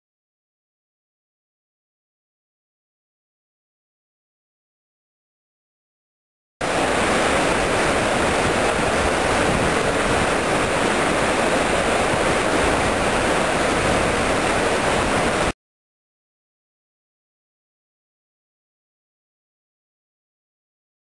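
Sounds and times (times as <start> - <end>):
water rushing and churning: 6.6 - 15.6.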